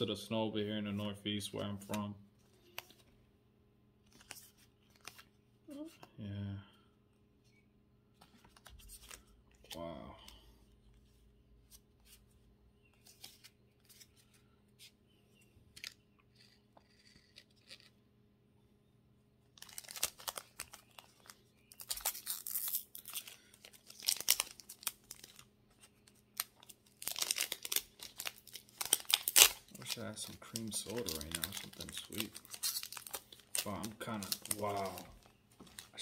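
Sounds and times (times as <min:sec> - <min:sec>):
foil wrapper tearing and crinkling: 0:19.6 - 0:25.5, 0:26.3 - 0:36.0.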